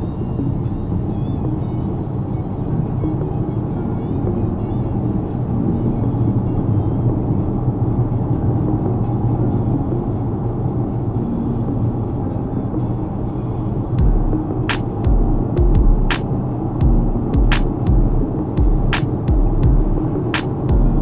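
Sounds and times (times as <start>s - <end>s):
car cabin road and engine rumble: 0.0s - 21.0s.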